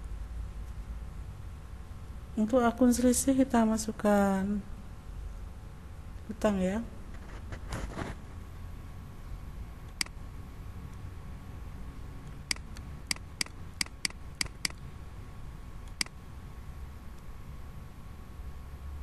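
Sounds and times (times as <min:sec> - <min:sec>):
faint steady hum: 0:00.0 - 0:19.0
mouse button clicking: 0:12.5 - 0:14.8, 0:15.9 - 0:16.2.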